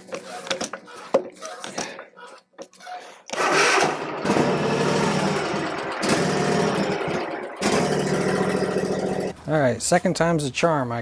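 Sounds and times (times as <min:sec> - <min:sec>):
mower engine running: 0:03.4 - 0:09.4.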